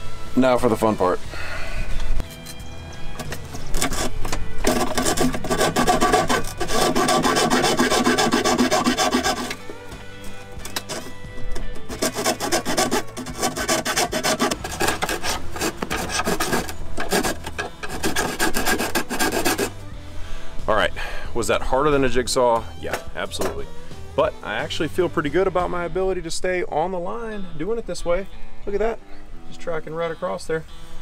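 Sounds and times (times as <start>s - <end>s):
hacksaw sawing fiberglass: 3.6s - 9.7s, 10.6s - 11.1s, 11.9s - 19.8s.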